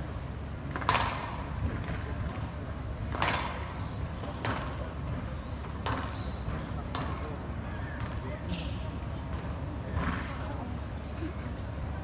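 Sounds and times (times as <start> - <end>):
crowd murmur in large hall: 0.0 - 12.0
shoes squeaking on wooden court: 0.3 - 2.6, 3.2 - 11.7
racket smacking squash ball: 0.7 - 1.4, 3.1 - 3.6.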